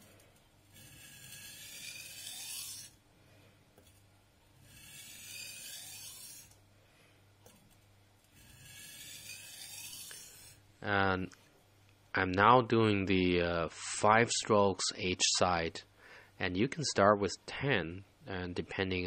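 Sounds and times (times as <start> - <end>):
knife scraping on whetstone: 0.7 - 3.0, 4.6 - 6.5, 8.4 - 10.6.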